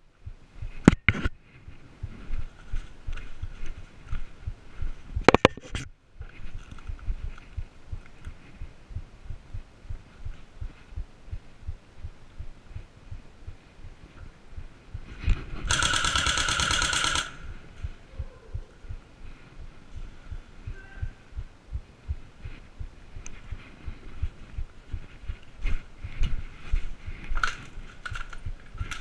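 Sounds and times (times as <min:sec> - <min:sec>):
sharp clicks: 0:15.6 - 0:17.4
airsoft rifle full-auto burst: 0:15.7 - 0:17.4.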